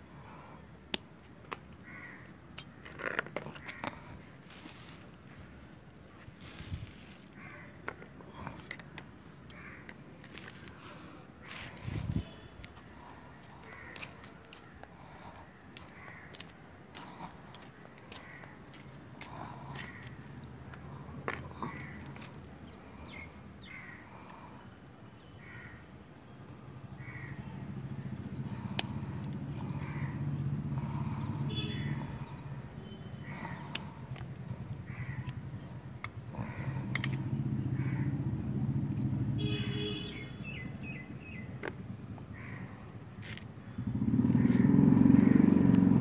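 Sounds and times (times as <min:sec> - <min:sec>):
crow cawing: 0:01.8 - 0:05.0, 0:07.3 - 0:08.5, 0:09.5 - 0:11.8, 0:13.0 - 0:24.6, 0:25.3 - 0:25.9, 0:27.0 - 0:32.6, 0:33.2 - 0:35.7, 0:36.3 - 0:36.9, 0:37.6 - 0:38.5, 0:42.3 - 0:42.9, 0:44.3 - 0:45.6
vehicle engine hum: 0:26.4 - 0:46.0.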